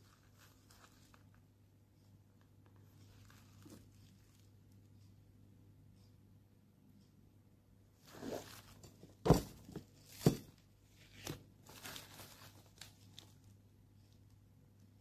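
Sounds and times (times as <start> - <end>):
plastic packaging crinkling: 11.1 - 13.5.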